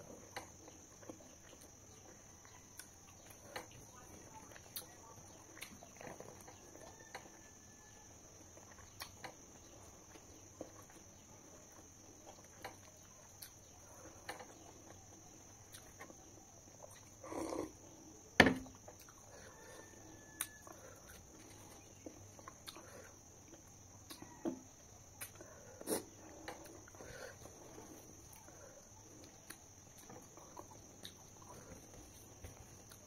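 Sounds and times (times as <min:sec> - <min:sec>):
steady high-pitched hiss: 0:00.0 - 0:33.0
mouth clicks and lip smacks: 0:25.2 - 0:26.1.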